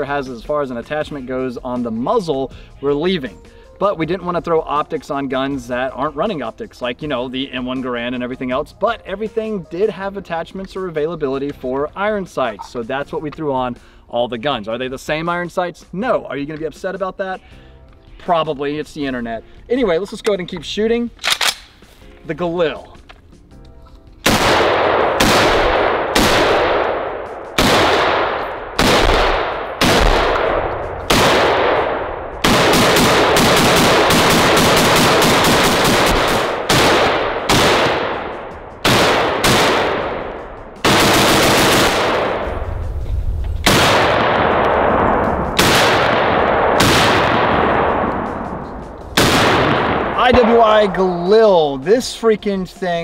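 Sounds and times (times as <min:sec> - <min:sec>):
rifle shots with echo: 0:24.2 - 0:42.7, 0:43.6 - 0:51.3.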